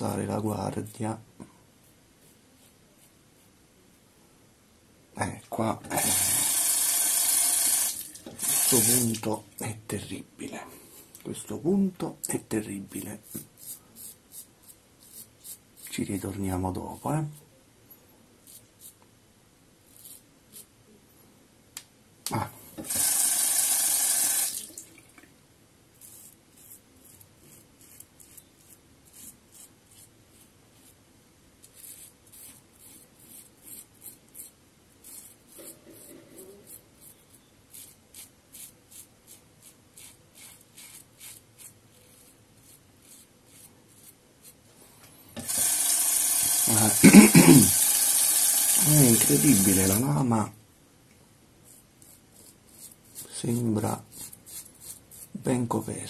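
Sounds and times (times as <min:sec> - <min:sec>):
razor scraping beard: 0:13.2 - 0:15.9, 0:18.4 - 0:19.0, 0:19.9 - 0:20.7, 0:26.0 - 0:31.0, 0:31.6 - 0:44.6, 0:45.5 - 0:50.1, 0:51.6 - 0:55.5
tap running: 0:45.4 - 0:46.7.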